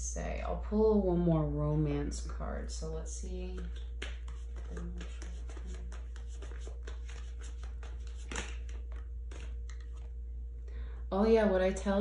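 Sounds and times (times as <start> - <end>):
low hum: 0.0 - 12.0
cards being shuffled: 3.5 - 10.2.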